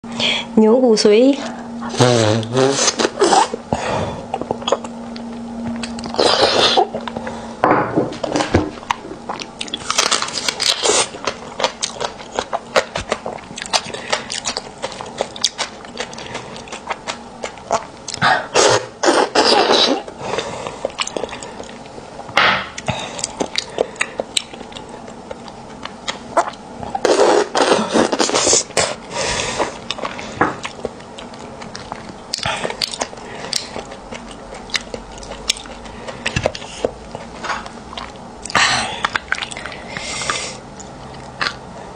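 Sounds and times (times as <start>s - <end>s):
close chewing mouth clicks: 29.8s - 41.6s.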